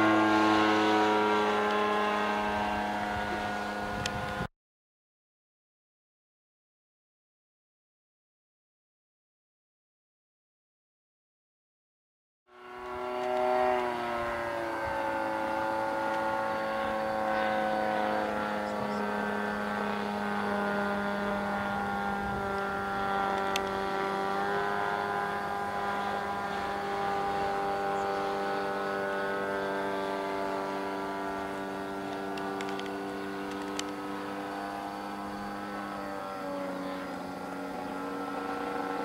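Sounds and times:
propeller plane engine drone: 0.0 - 4.5, 12.5 - 39.0.

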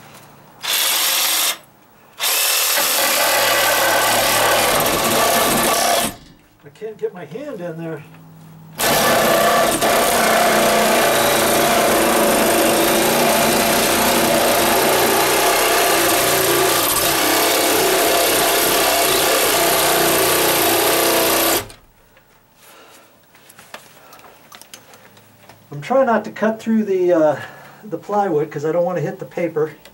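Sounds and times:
reciprocating saw cutting wood: 2.2 - 6.2, 8.8 - 21.8.

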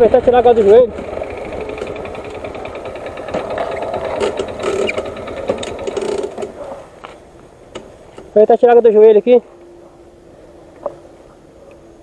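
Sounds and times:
motorcycle engine idling: 0.0 - 6.7.

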